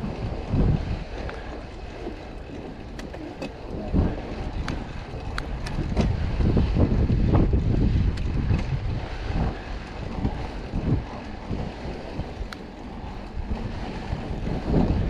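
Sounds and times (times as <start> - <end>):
wind buffeting microphone: 0.0 - 15.0
low rumble: 3.6 - 15.0
bike clicks and rattles: 7.8 - 8.8.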